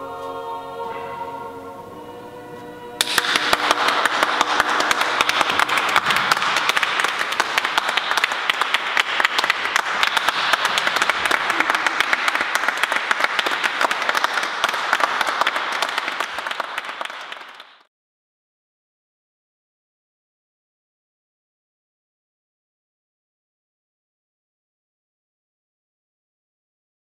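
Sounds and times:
audience applauding: 0:03.0 - 0:17.9.

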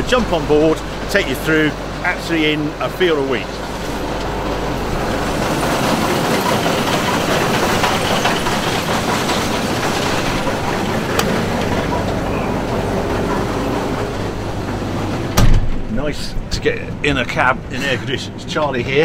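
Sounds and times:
combine harvester clattering: 0:00.0 - 0:19.0.

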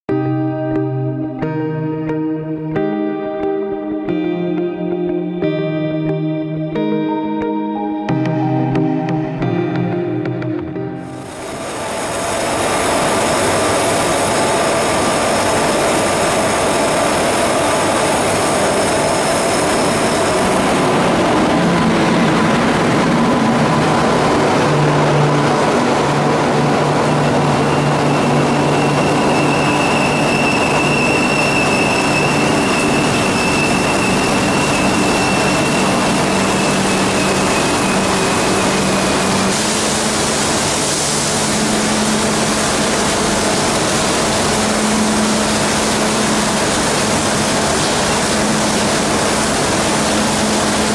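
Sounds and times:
electric locomotive high whine: 0:00.2 - 0:50.9
train coaches passing hum: 0:04.2 - 0:50.9
thin high tone: 0:06.8 - 0:40.4
heavy rain: 0:11.0 - 0:50.9.

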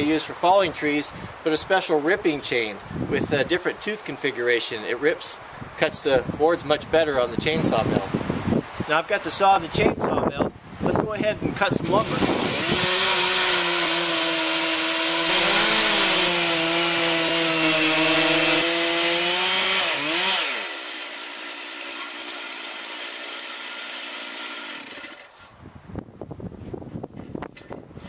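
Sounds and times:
chainsaw cutting log: 0:11.8 - 0:25.4.

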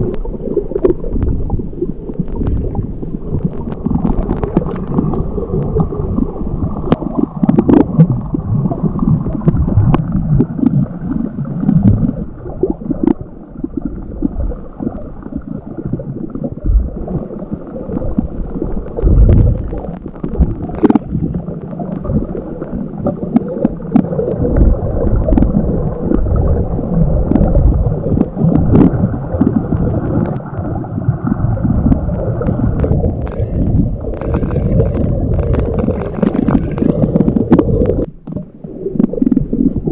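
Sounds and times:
underwater water rumble: 0:00.0 - 0:39.9.

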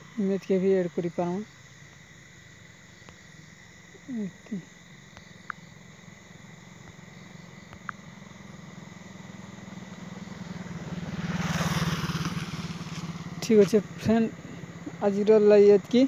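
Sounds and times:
vehicle engine running: 0:05.6 - 0:16.0.

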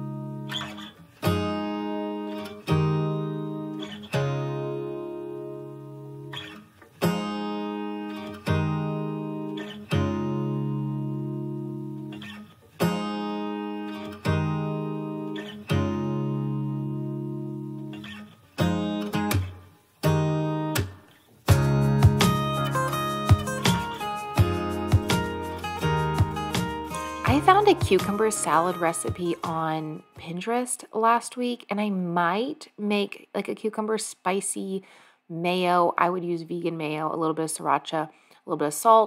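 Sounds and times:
acoustic guitar strumming chords: 0:00.0 - 0:30.4.

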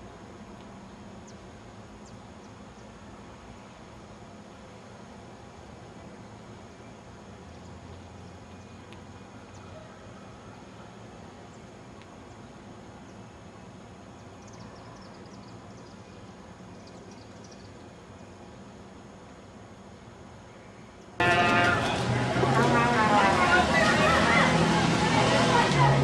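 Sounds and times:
low outdoor rumble: 0:00.0 - 0:26.0
faint bird chirps: 0:14.1 - 0:18.4.

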